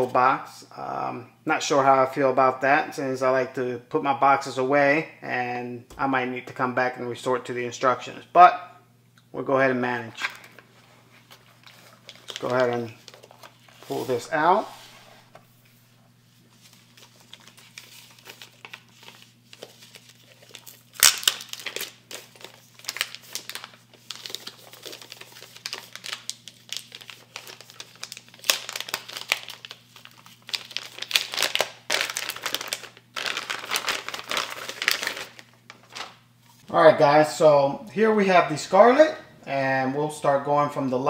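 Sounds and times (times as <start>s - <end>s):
plastic bag crinkling: 10.2s - 15.4s, 16.3s - 36.6s.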